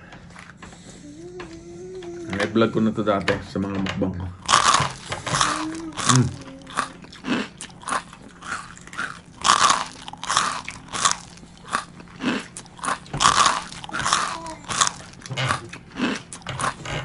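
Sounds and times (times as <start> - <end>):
person chewing crispy chicken: 4.4 - 17.0.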